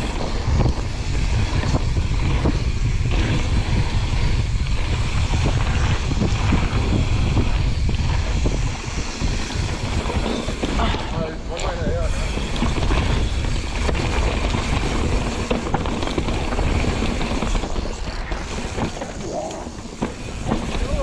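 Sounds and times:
bike tyres rolling: 0.0 - 21.0
wind buffeting microphone: 0.0 - 21.0
bike knocks and rattles: 12.4 - 21.0.

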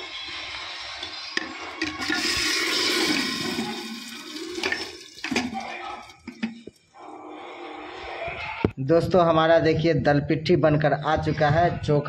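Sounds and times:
utensil clanking: 1.8 - 6.8
hot oil sizzling: 1.9 - 5.6.

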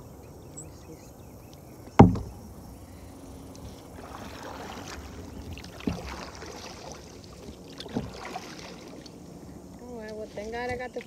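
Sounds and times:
water sloshing around kayak: 1.3 - 11.0
knock on kayak hull: 2.0 - 2.5.

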